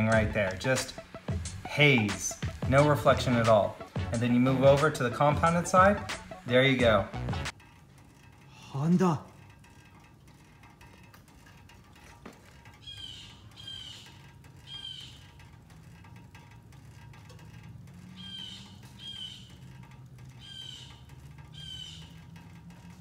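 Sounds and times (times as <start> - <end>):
bird calls: 12.8 - 15.4, 18.1 - 19.7, 20.3 - 22.3.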